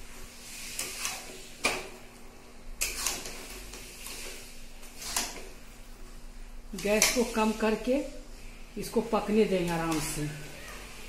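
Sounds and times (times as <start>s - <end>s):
spoon scraping metal pan: 2.8s - 5.5s.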